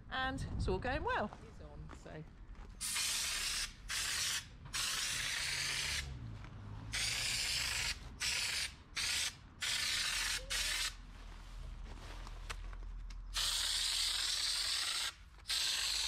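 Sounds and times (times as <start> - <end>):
spray gun hissing blasts: 2.8 - 6.1.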